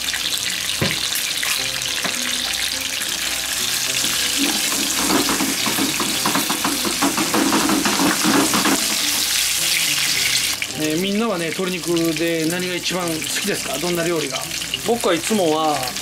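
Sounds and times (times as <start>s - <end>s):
chicken sizzling in frying pan: 0.0s - 16.0s
utensil scraping pan: 4.0s - 9.3s.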